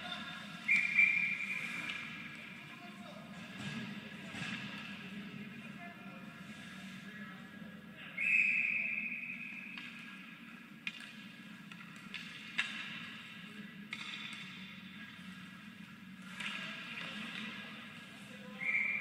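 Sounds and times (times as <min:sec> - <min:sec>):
referee whistle: 0:00.7 - 0:01.6, 0:08.2 - 0:09.6, 0:18.6 - 0:19.0.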